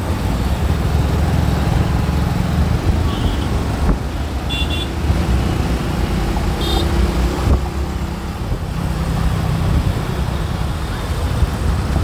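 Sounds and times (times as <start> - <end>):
highway traffic rumble: 0.0 - 12.0.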